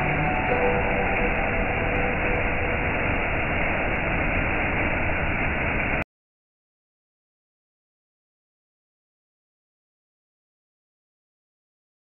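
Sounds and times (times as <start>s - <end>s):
waterfall rushing over rock: 0.0s - 6.0s.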